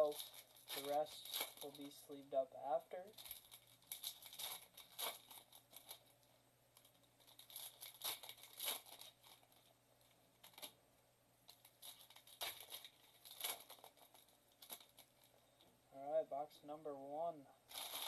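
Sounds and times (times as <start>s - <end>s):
foil wrapper tearing and crinkling: 0.0s - 2.0s, 3.0s - 6.1s, 6.8s - 9.6s, 11.5s - 15.3s, 17.7s - 18.0s.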